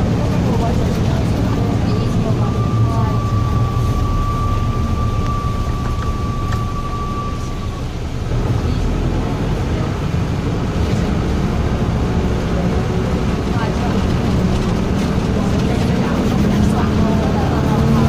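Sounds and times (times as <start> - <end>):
minibus engine running: 0.0 - 18.0
road rumble: 0.0 - 18.0
high-pitched tone: 1.4 - 8.2.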